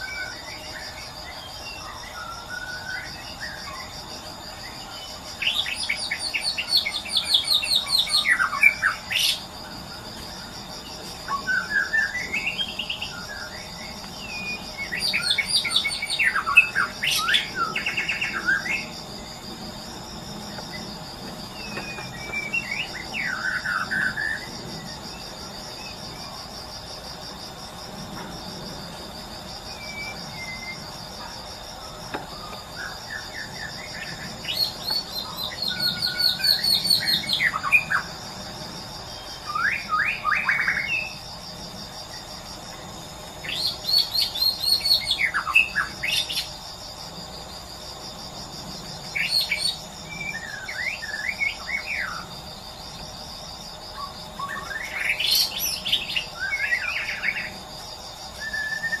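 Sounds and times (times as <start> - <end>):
pulsing insect chorus: 0.0 - 59.0
songbird whistles and trills: 58.4 - 59.0.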